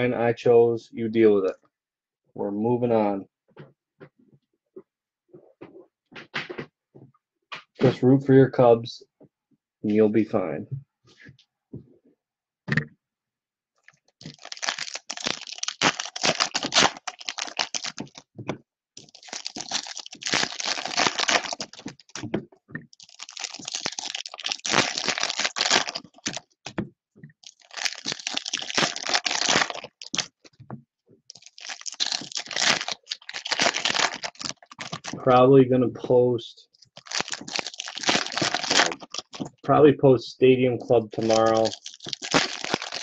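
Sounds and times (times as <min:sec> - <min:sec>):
foil packs crinkling and tearing: 0:14.2 - 0:18.3, 0:19.0 - 0:22.2, 0:23.0 - 0:26.6, 0:27.4 - 0:30.4, 0:31.3 - 0:35.2, 0:36.9 - 0:39.5, 0:41.1 - 0:43.0.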